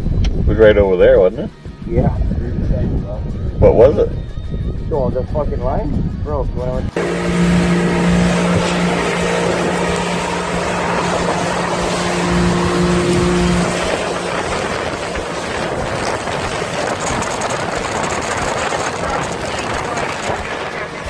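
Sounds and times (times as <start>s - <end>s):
outboard motor hum: 6.9s - 21.0s
wind and water rushing: 6.9s - 21.0s.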